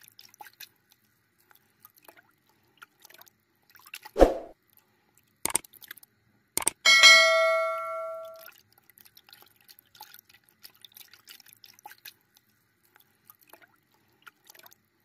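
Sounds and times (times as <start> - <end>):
water dripping and trickling: 0.0 - 4.2, 8.1 - 15.0.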